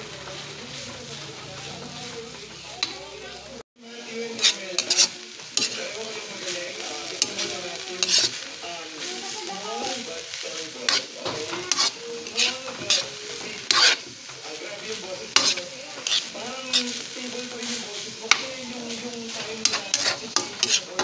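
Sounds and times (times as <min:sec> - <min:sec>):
food sizzling: 0:00.0 - 0:21.0
spatula scraping a wok: 0:00.0 - 0:21.0.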